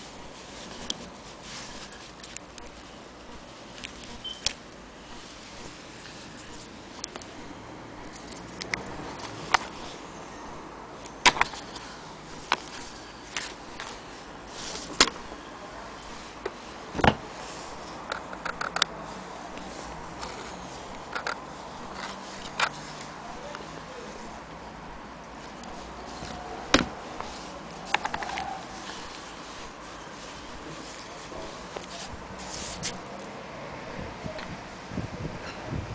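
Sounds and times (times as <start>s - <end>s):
clicks and taps of handling: 27.9s - 28.5s.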